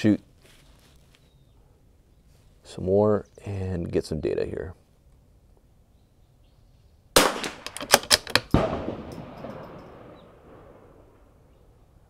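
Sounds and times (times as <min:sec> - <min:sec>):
gunshots with echo: 0:07.2 - 0:11.2.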